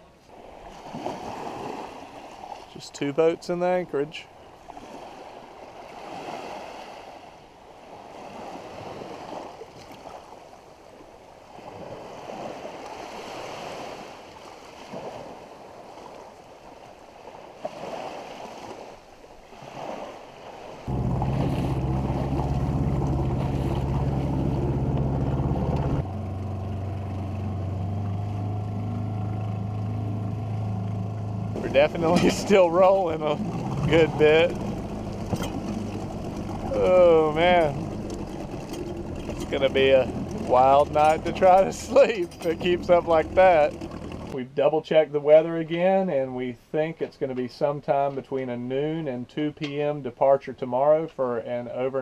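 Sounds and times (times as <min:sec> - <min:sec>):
waves washing around boat: 0:00.0 - 0:44.4
wind: 0:00.0 - 0:52.0
motor drone: 0:20.9 - 0:44.3.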